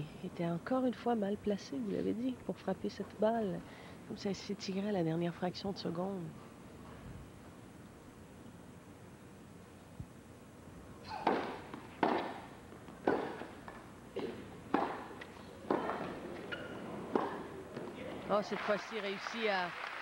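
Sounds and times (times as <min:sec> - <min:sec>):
tennis ball bouncing: 0:11.1 - 0:18.0
racquet hitting tennis ball: 0:11.1 - 0:18.2.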